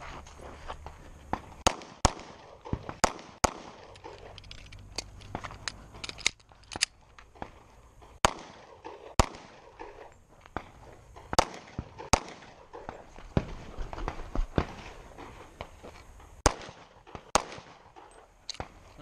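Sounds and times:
pistol shots: 1.6 - 4.3, 8.2 - 13.5, 16.4 - 18.8.

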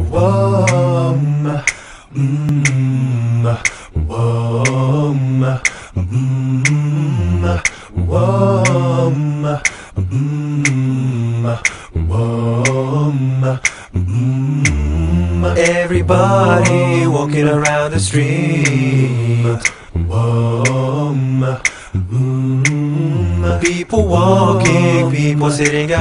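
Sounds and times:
a cappella singing: 0.0 - 26.0
sharp beat clicks: 0.6 - 0.9, 3.6 - 3.8, 5.6 - 5.8, 6.6 - 6.9, 7.6 - 7.8, 9.6 - 9.8, 10.6 - 10.9, 14.6 - 17.0, 21.6 - 21.8, 22.6 - 22.9.

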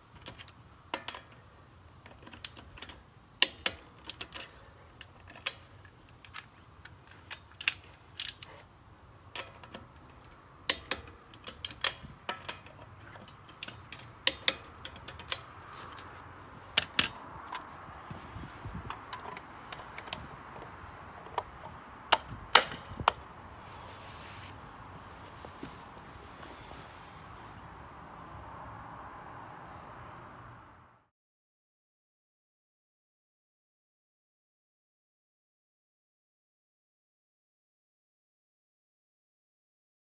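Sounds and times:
socket wrench clicking on lug nuts: 0.1 - 1.4, 2.0 - 8.5, 9.3 - 15.7, 16.8 - 17.7, 18.8 - 23.2.

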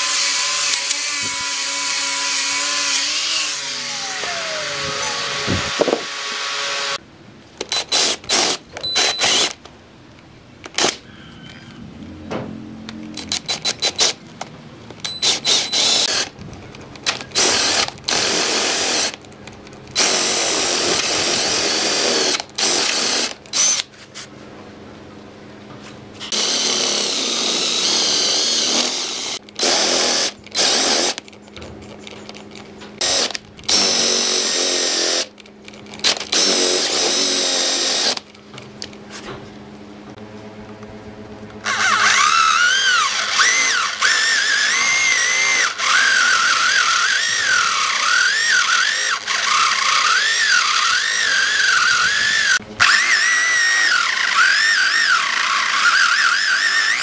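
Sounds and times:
cordless drill boring into wood: 0.0 - 7.0, 7.7 - 9.6, 15.1 - 16.3, 17.1 - 19.2, 20.0 - 23.9, 26.2 - 31.2, 33.0 - 35.3, 36.0 - 38.3, 41.6 - 57.0
electric drill whine in hardwood: 0.0 - 7.0, 7.7 - 9.6, 15.1 - 16.3, 17.3 - 19.2, 20.0 - 23.9, 26.2 - 31.2, 33.0 - 35.3, 36.0 - 38.2, 41.6 - 57.0.

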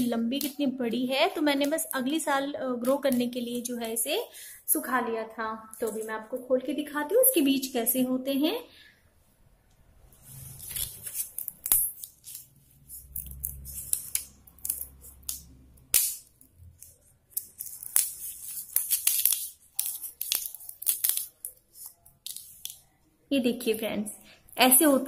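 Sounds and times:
dry bean pod cracking: 10.6 - 22.9.

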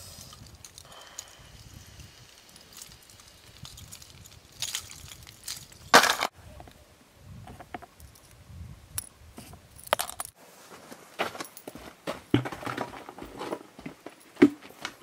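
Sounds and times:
metal lures clicking and jangling: 0.3 - 6.0.

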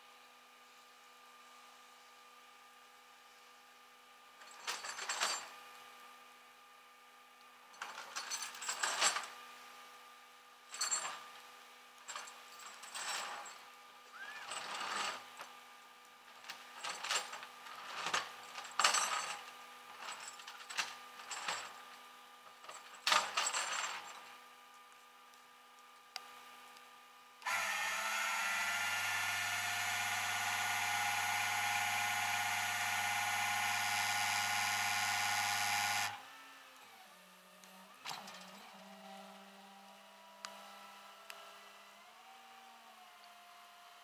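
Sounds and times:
steel chain clinking and rattling: 4.4 - 5.5, 7.8 - 9.4, 10.7 - 11.3, 12.1 - 13.7, 14.4 - 15.4, 16.3 - 24.4.

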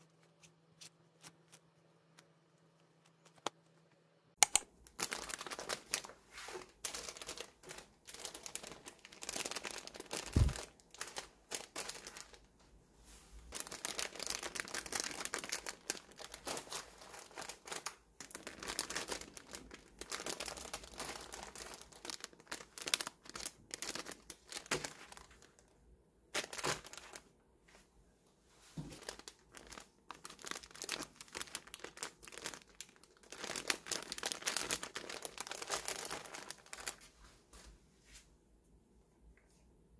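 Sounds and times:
plastic bags crinkling: 4.8 - 12.5, 13.5 - 25.7, 26.3 - 27.2, 28.8 - 37.1
soft thump: 10.3 - 10.6.

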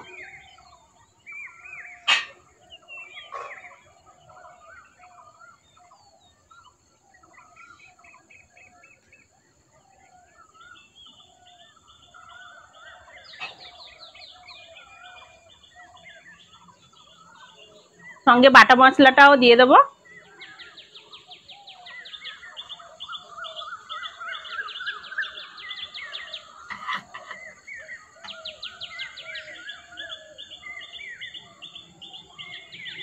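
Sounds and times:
birds chirping: 0.0 - 33.0.

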